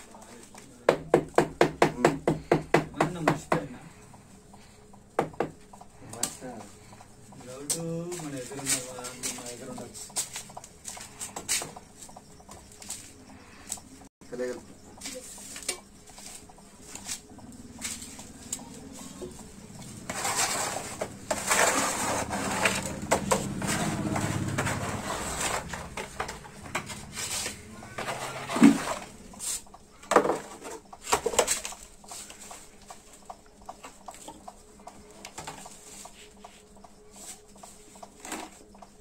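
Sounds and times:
trowel scraping mortar: 20.0s - 25.9s, 27.0s - 29.6s.

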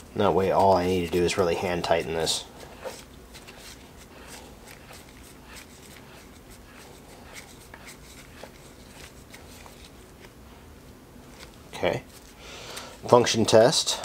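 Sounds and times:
soft rubbing and rustling: 0.0s - 14.0s.

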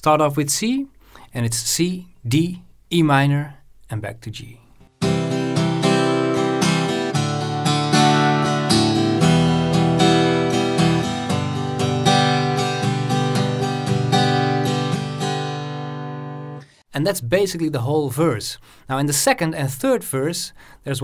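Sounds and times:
acoustic guitar strumming: 4.9s - 16.8s.

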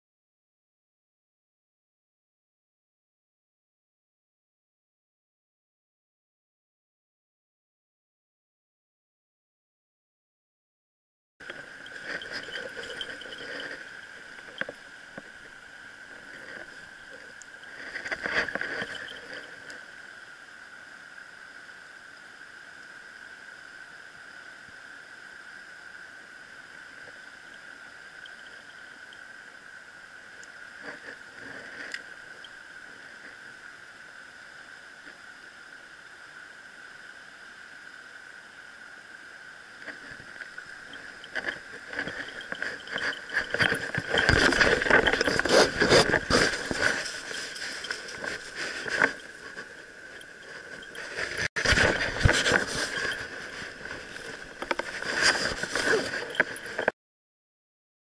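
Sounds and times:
handling noises: 11.4s - 19.6s, 40.9s - 56.9s
high-pitched whine: 11.4s - 56.9s.

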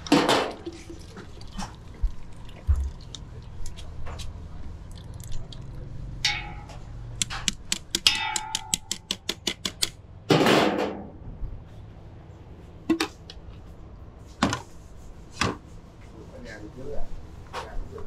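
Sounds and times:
sharp clicks: 7.2s - 10.0s.

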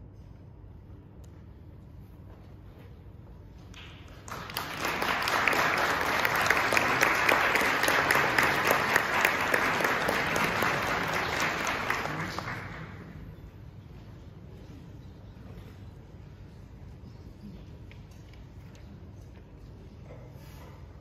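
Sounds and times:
audience applauding: 3.7s - 13.3s.

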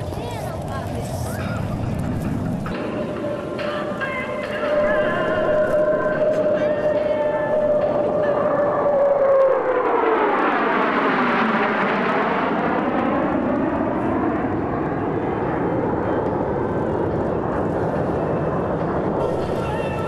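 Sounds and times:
fighter jets passing overhead: 0.0s - 20.0s.

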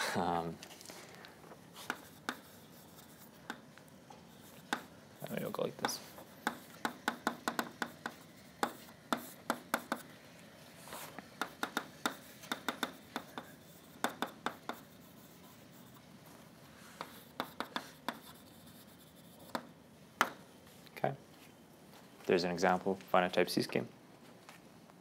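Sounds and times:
chalk tapping and scratching on blackboard: 1.7s - 3.6s, 4.2s - 10.2s, 10.8s - 20.4s.

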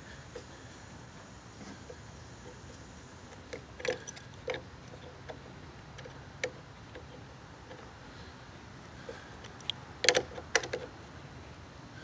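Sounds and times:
metallic clicks of a wrench: 9.4s - 10.9s.

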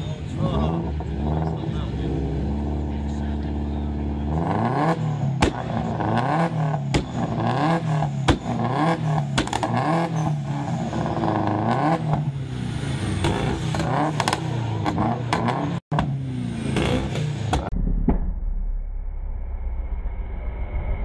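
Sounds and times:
car engine idling and revving: 0.0s - 21.0s
exhaust pops and backfire bangs: 3.3s - 12.4s, 13.1s - 19.3s.

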